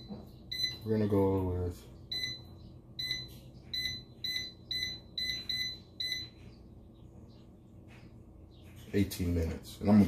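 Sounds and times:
air fryer button beeps: 0.0s - 0.9s, 2.1s - 6.4s
steady low hum: 0.0s - 10.0s.

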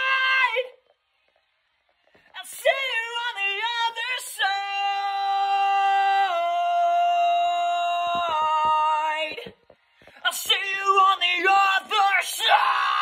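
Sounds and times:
man singing unaccompanied: 2.4s - 9.5s, 10.2s - 12.6s.

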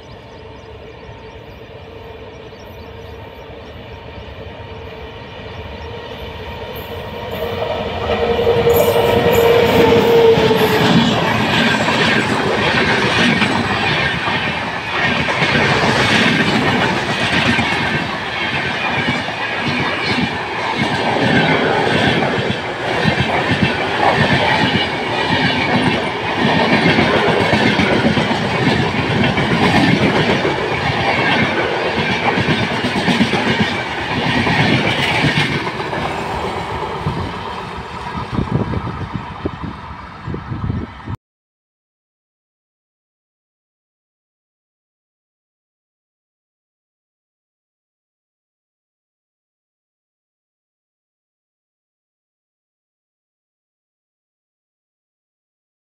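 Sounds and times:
train rolling rumble: 0.0s - 41.2s.

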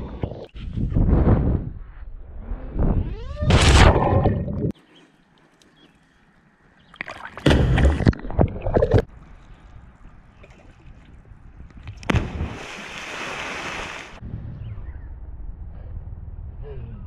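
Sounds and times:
person splashing into water: 7.0s - 9.1s, 12.0s - 14.2s.

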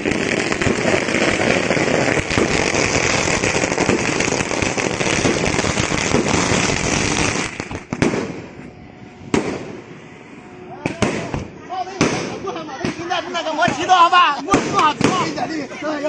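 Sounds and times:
firecrackers crackling and banging: 0.0s - 8.6s, 9.3s - 9.9s, 10.8s - 15.6s.

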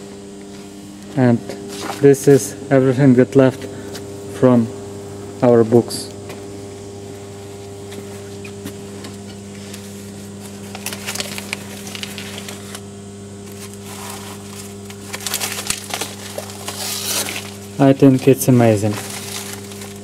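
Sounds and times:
low electrical hum: 0.0s - 20.0s
book pages rustling and crackling: 7.9s - 20.0s.

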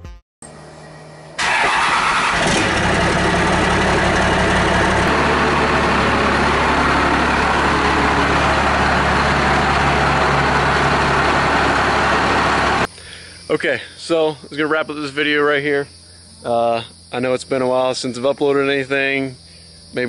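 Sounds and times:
diesel engine starting and idling: 1.2s - 12.9s.

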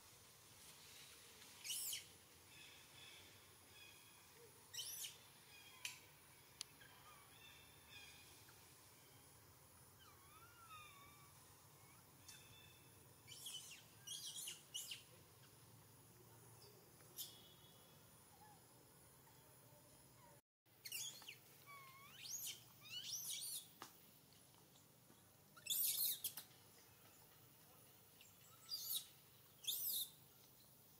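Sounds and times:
infant monkey calling: 10.0s - 12.6s, 20.2s - 23.6s.

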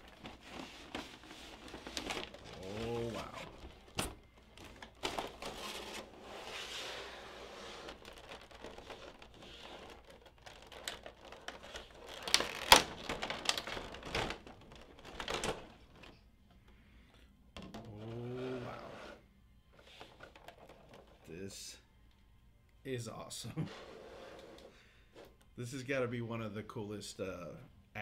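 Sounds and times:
plastic packaging crinkling: 0.0s - 16.2s, 20.0s - 21.3s.

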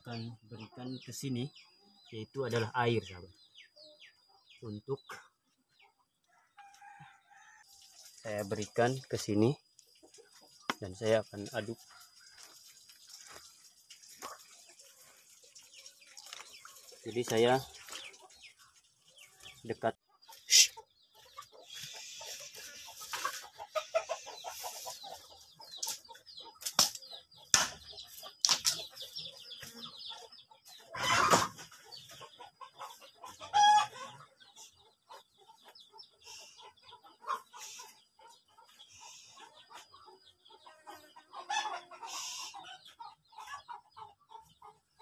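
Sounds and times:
chickens clucking: 0.0s - 45.0s.

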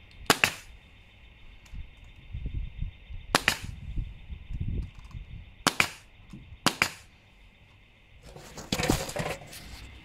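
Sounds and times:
nail gun firing into wood: 0.2s - 0.7s, 3.3s - 3.8s, 5.6s - 7.1s.

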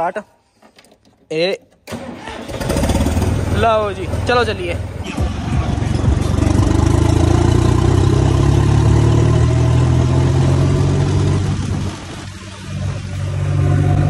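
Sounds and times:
tractor diesel engine running: 1.9s - 7.8s.

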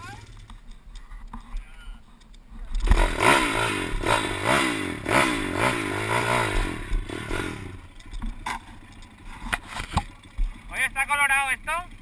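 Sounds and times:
small engine revving: 2.7s - 8.2s.

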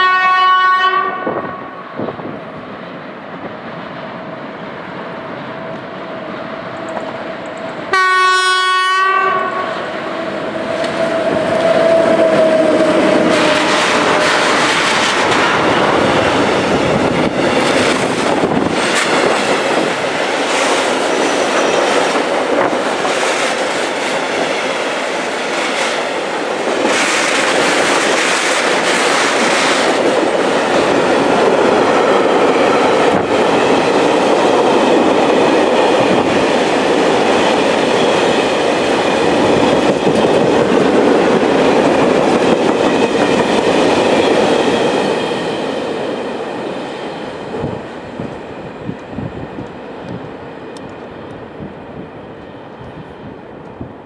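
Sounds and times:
freight train wagons rolling: 10.2s - 47.8s.

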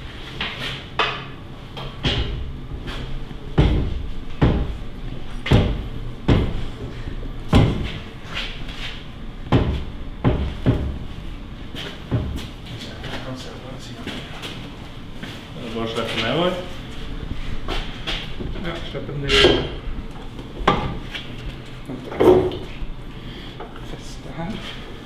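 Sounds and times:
engine knocks and clunks: 1.1s - 8.0s.

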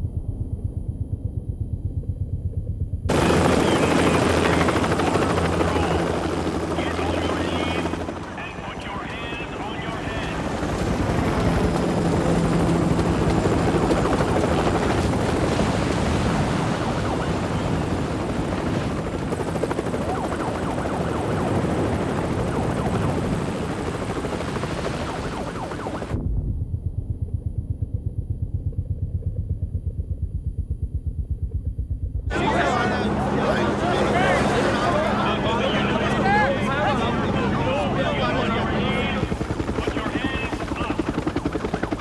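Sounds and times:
helicopter hovering overhead: 0.0s - 42.0s.

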